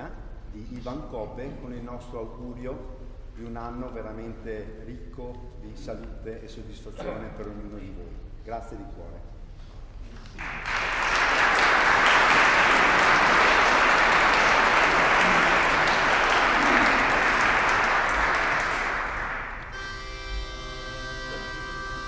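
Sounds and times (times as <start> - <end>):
audience applauding: 10.4 - 19.8.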